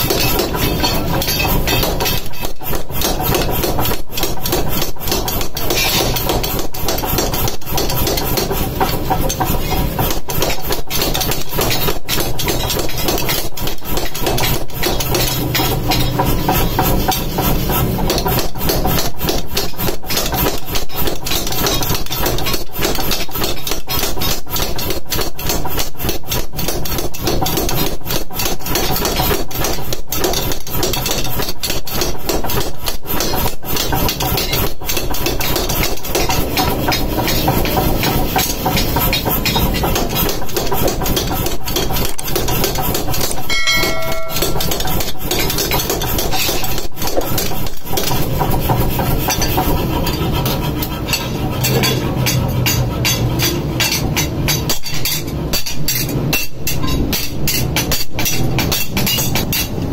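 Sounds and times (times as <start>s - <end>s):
power hammer striking steel: 0.0s - 59.9s
low machine hum: 43.5s - 45.5s.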